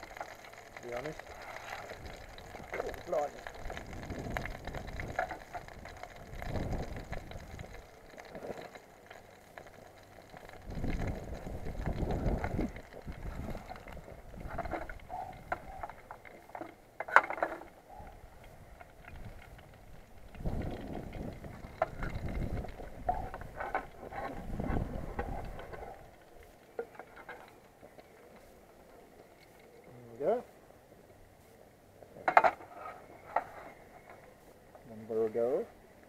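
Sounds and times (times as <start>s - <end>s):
wind gusts on microphone: 3.6s - 7.8s, 10.6s - 15.7s, 18.3s - 26.1s.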